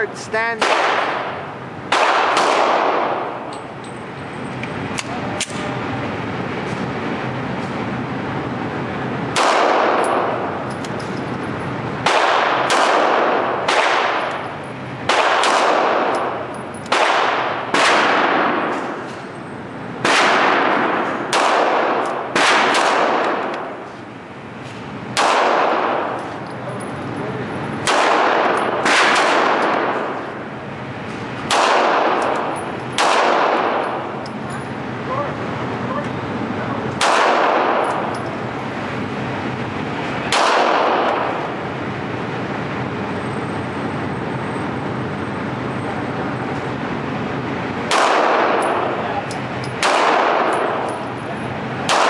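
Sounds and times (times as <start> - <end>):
pistol shots echoing indoors: 0.6 - 3.6, 9.3 - 10.6, 12.0 - 19.2, 20.0 - 23.8, 25.1 - 26.4, 27.8 - 30.4, 31.4 - 34.3, 36.9 - 38.3, 40.3 - 41.4, 47.9 - 49.0, 49.7 - 51.2.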